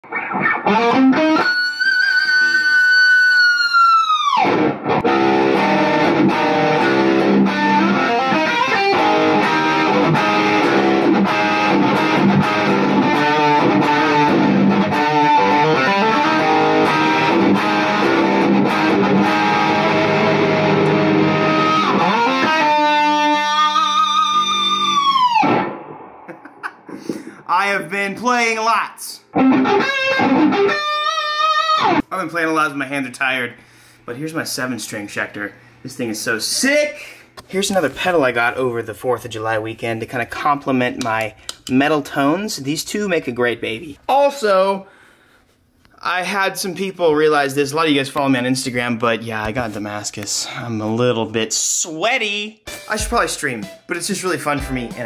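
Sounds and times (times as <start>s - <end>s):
distorted electric guitar: 0.0s - 26.9s, 29.3s - 32.0s, 54.5s - 55.0s.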